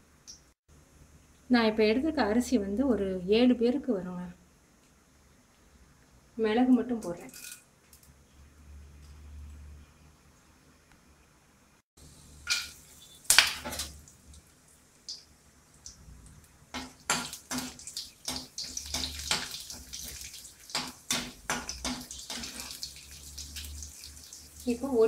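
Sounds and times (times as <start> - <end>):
nuts sizzling in hot oil: 12.0 - 14.0, 16.7 - 25.0
spatula scraping and tapping pan: 16.7 - 22.8.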